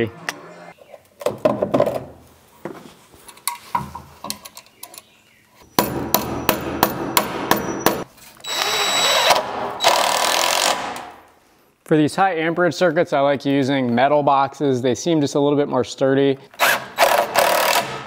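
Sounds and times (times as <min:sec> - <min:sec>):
cordless drill driving screws: 0:08.4 - 0:11.0, 0:16.6 - 0:18.0.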